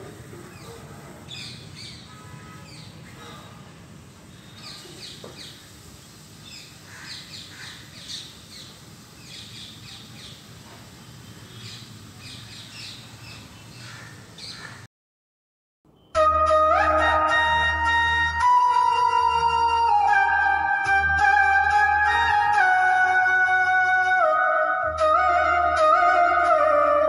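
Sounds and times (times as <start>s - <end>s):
birds chirping: 0.4s - 3.6s, 4.3s - 14.8s.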